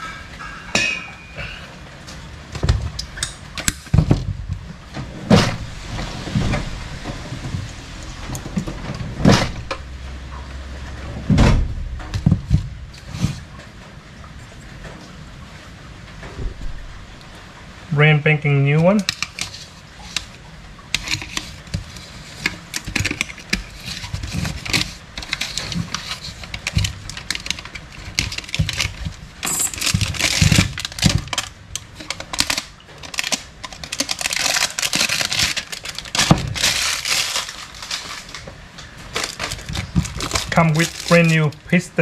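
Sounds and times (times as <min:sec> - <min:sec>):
plastic packaging crinkling: 0:21.0 - 0:41.9
small metal parts clinking: 0:26.5 - 0:31.4.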